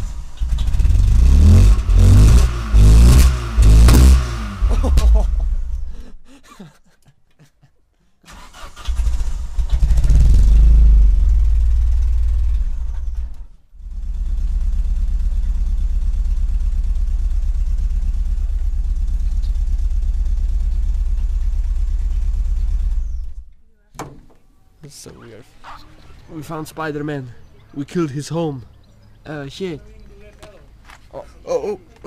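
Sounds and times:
car engine starting and idling: 0:00.0 - 0:06.2, 0:08.3 - 0:23.5.

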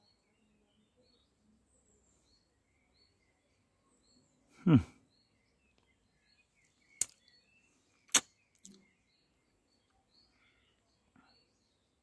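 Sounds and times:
faint birdsong: 0:00.0 - 0:12.0
sharp clicks: 0:08.1 - 0:08.8.

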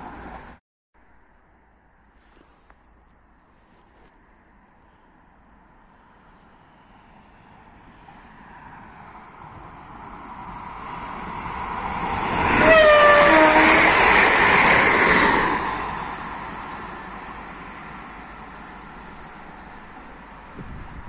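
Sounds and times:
train rushing past: 0:08.0 - 0:21.0
train horn blast: 0:12.4 - 0:14.1.

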